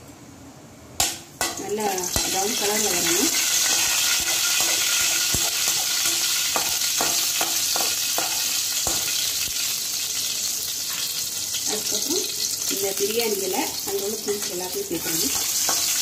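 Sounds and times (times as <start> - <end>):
seeds sizzling in hot oil: 1.4 - 16.0
spoon scraping and tapping pan: 3.0 - 9.2, 15.3 - 16.0.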